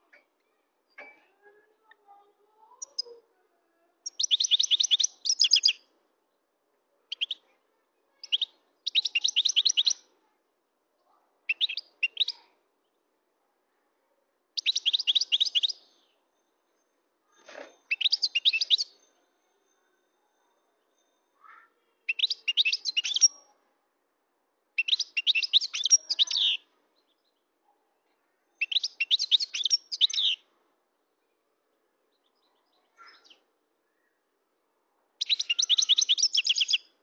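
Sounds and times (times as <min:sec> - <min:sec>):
finch singing high twittering: 0:04.0 - 0:05.8, 0:08.2 - 0:10.0, 0:14.6 - 0:15.9, 0:17.9 - 0:19.0, 0:22.1 - 0:23.4, 0:24.8 - 0:26.6, 0:28.6 - 0:30.4, 0:35.2 - 0:36.8.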